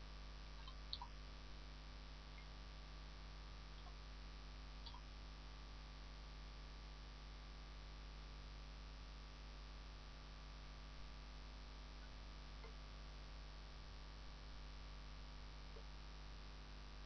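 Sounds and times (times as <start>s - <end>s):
mains hum and hiss: 0.0s - 17.0s.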